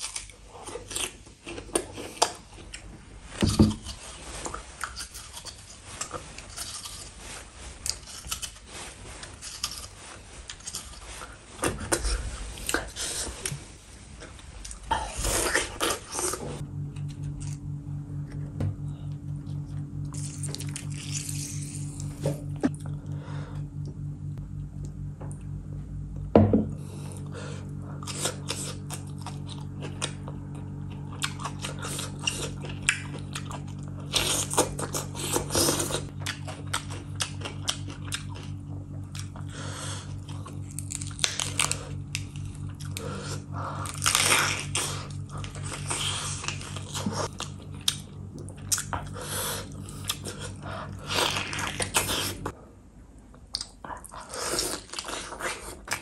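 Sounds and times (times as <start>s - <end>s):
close chewing and biting: 0.0s - 2.9s, 3.5s - 13.6s, 14.2s - 17.6s, 20.1s - 23.1s, 28.0s - 52.6s, 53.5s - 56.0s
low hum: 0.0s - 56.0s.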